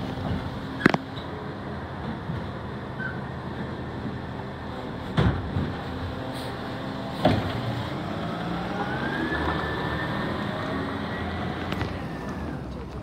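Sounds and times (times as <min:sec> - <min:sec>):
garbage truck diesel engine: 0:00.0 - 0:13.0
rising whine: 0:07.8 - 0:12.7.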